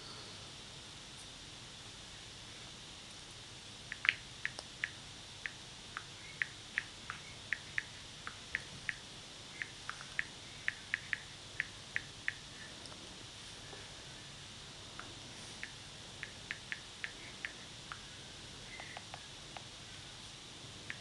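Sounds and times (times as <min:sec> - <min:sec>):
faint room hiss: 0:00.0 - 0:21.0.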